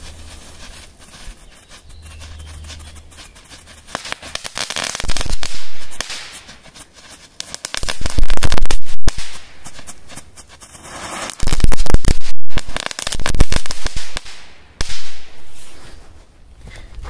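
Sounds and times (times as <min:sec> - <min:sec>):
firecrackers banging and crackling: 0:03.8 - 0:15.7.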